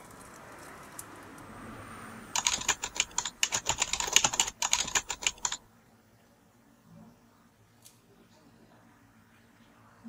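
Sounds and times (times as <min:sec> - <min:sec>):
keyboard typing clicks: 0:02.4 - 0:05.6.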